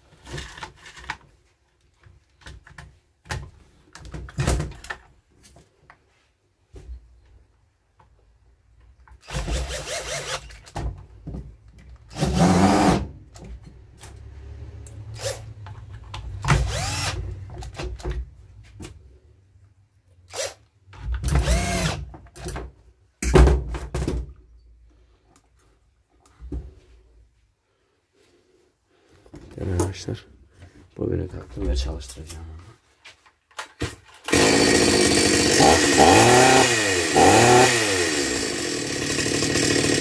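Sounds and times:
cordless drill motor spinning: 16.6s - 17.2s, 21.4s - 22.0s, 34.3s - 40.0s.

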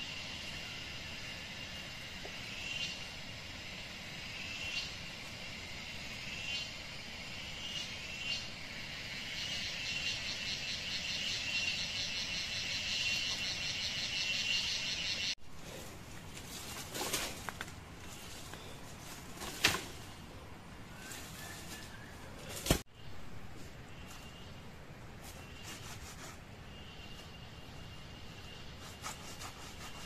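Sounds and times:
insect chorus buzzing: 0.0s - 15.4s.

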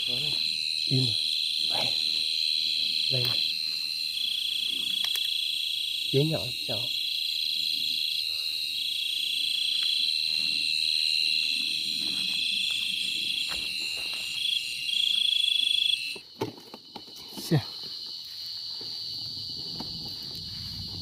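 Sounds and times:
chorus of night insects: 0.0s - 21.0s
cricket trilling: 0.0s - 21.0s.

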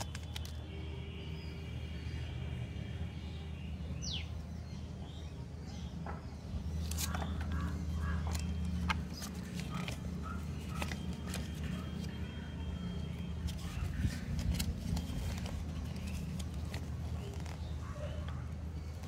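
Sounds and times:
paper cards rustling: 0.0s - 0.6s, 6.6s - 19.0s.

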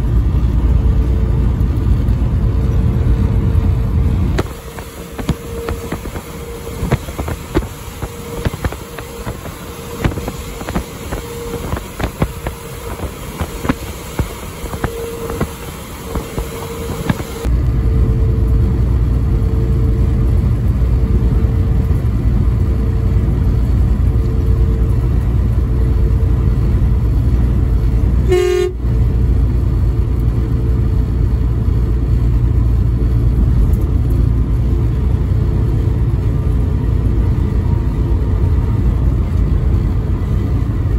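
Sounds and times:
road and engine noise in vehicle: 0.0s - 40.9s
short pitched tone: 28.2s - 28.9s.

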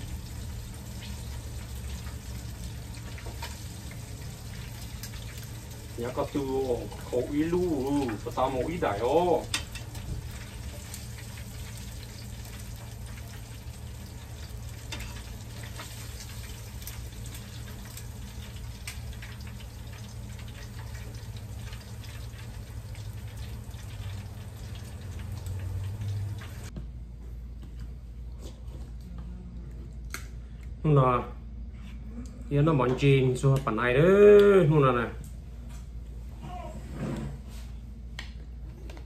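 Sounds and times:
fish deep-frying in oil: 0.0s - 26.7s
spattering oil crackles and pops: 0.0s - 26.7s.

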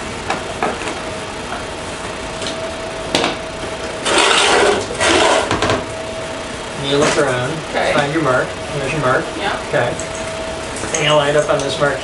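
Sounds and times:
faint hum: 0.0s - 12.0s
pipe scraping on concrete: 4.0s - 5.6s.

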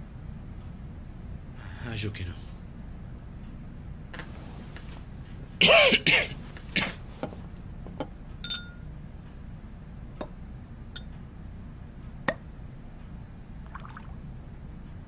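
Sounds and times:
man coughing: 5.6s - 7.0s
glass clinking on wooden table: 8.0s - 8.9s
glass ringing tone: 8.4s - 8.9s.

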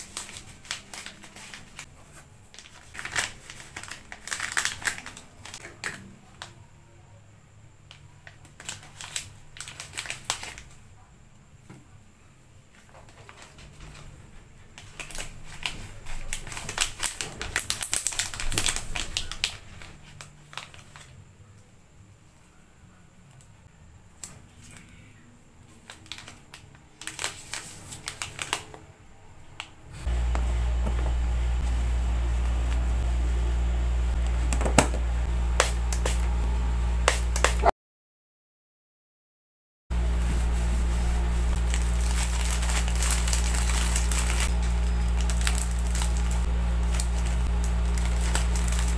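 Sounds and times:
plastic pouch crinkling: 0.0s - 6.0s, 8.2s - 10.8s, 14.8s - 21.2s, 25.7s - 28.8s, 40.3s - 48.9s
steady low hum: 29.0s - 37.7s, 39.9s - 48.9s.

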